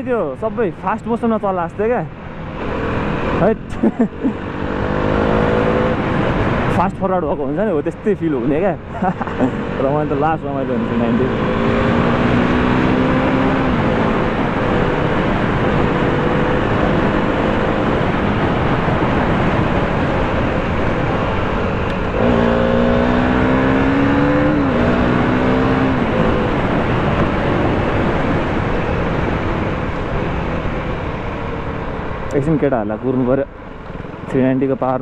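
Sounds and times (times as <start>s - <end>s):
motorcycle engine accelerating: 0.0s - 34.9s
wind noise on microphone: 4.5s - 7.8s, 10.8s - 32.3s.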